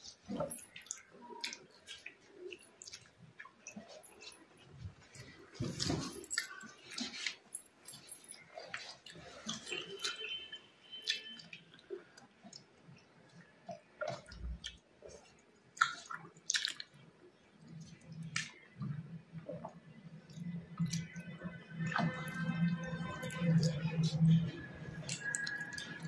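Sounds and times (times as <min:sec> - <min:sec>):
chewing and mouth smacks: 0:00.1 - 0:17.0, 0:17.6 - 0:26.0.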